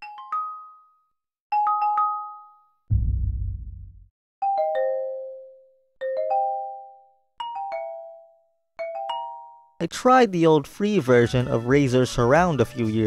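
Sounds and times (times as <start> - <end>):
short low rumble: 2.9 - 4.1.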